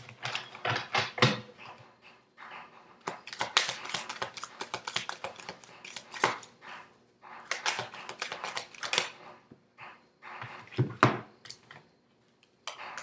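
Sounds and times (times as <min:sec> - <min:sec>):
cards being shuffled: 0:03.1 - 0:06.5.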